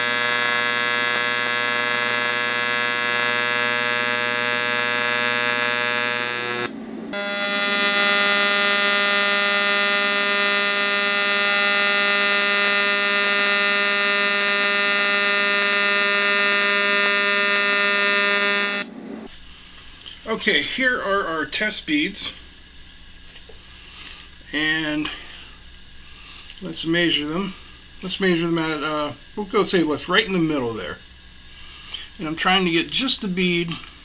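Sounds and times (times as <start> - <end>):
welding arc buzzing: 0.0 - 19.0.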